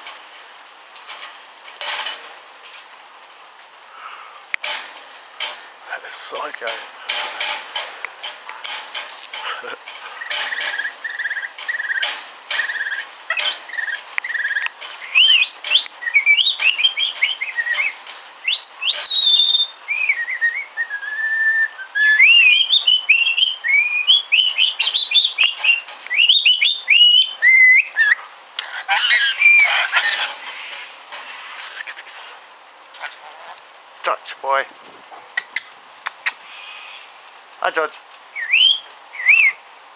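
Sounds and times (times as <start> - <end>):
lorikeet whistling and chattering: 10.1 - 30.4, 38.3 - 39.6
bird sharp clicks: 35.4 - 36.4.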